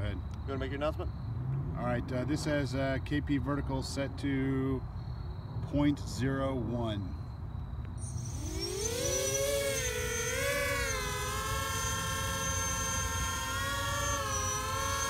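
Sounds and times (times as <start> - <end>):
drone rotors whining: 7.9 - 15.0.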